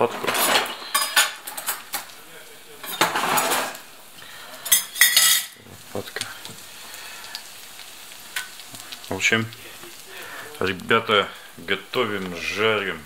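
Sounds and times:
cutlery clinking against dishes: 0.0 - 2.1, 2.8 - 3.8, 4.6 - 5.6
food sizzling in oil: 0.0 - 13.0.

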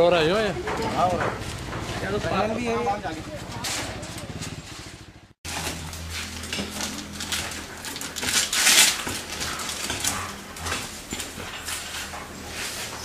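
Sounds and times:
metal instruments clinking: 5.5 - 13.0.

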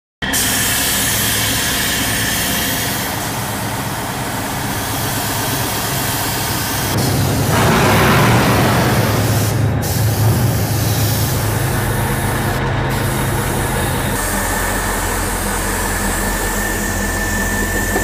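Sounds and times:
engine running: 0.2 - 18.0
paint spray gun hiss: 0.3 - 7.6, 9.2 - 11.4.

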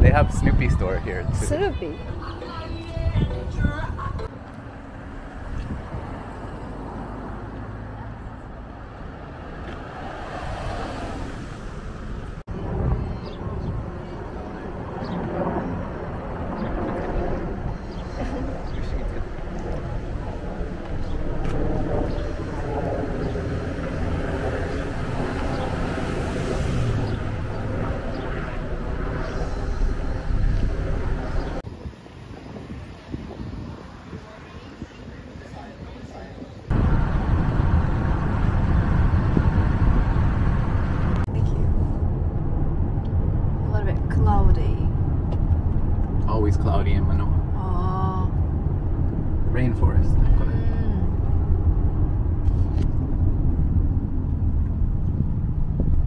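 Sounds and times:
street traffic rumble: 0.0 - 56.0
car driving slowly: 36.7 - 47.7.

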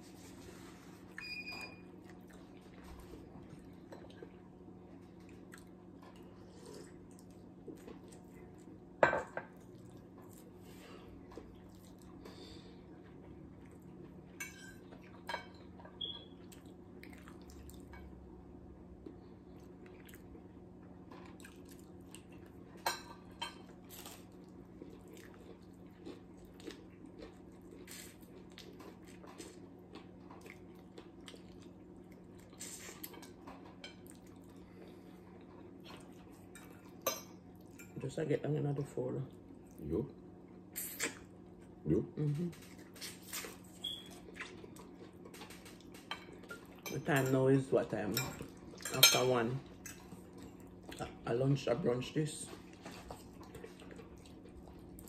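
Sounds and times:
soft chewing: 0.0 - 15.3, 16.4 - 18.2, 19.0 - 38.0, 39.2 - 46.9, 49.6 - 51.2, 52.3 - 55.0.

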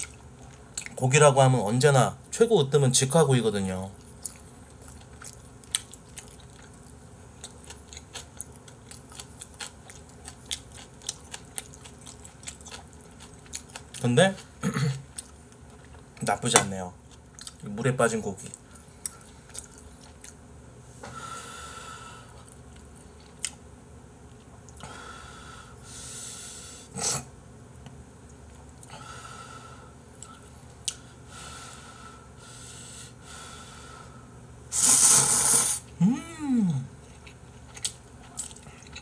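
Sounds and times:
person chewing: 0.0 - 1.0, 4.0 - 16.3, 17.1 - 17.7, 18.4 - 20.4, 22.3 - 23.6, 34.8 - 39.0
nose breathing: 24.8 - 27.2, 31.2 - 35.8
noodle slurping: 34.7 - 35.9
person humming mm: 34.8 - 37.0.

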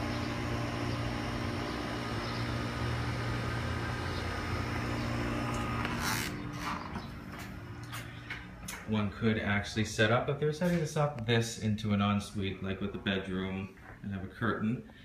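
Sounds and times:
air conditioner unit humming: 0.0 - 15.0.

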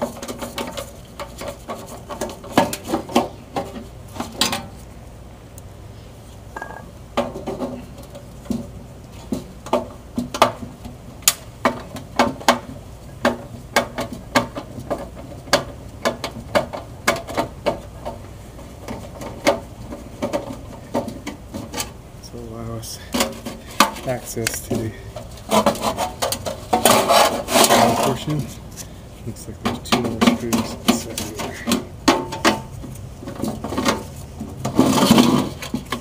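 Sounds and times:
metallic clicks of sheet metal: 11.2 - 18.2.

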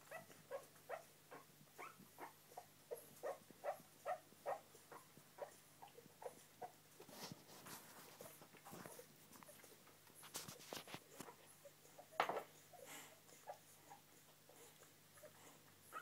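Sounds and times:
puppies snuffling and suckling: 0.0 - 16.0.

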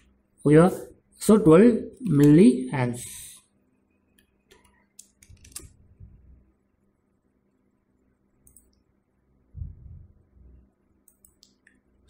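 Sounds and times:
keyboard and mouse clicks: 4.1 - 5.8, 8.4 - 8.9, 11.0 - 11.9.

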